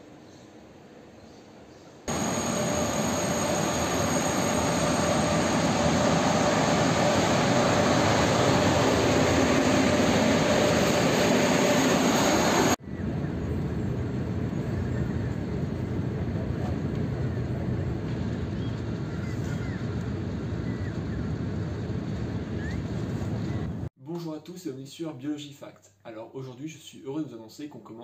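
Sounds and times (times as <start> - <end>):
high-speed train rushing: 2.1 - 18.4
train rumble from inside carriage: 12.6 - 23.9.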